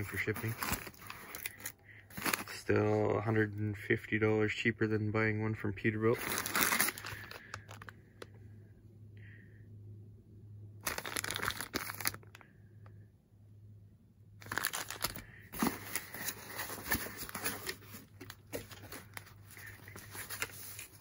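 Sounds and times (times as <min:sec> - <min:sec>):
tissue paper rustling: 0:00.0 - 0:02.5, 0:06.2 - 0:07.8, 0:10.9 - 0:12.2, 0:14.4 - 0:21.0
plastic bag crinkling: 0:00.0 - 0:02.6, 0:06.1 - 0:08.0, 0:10.8 - 0:12.4, 0:14.4 - 0:21.0.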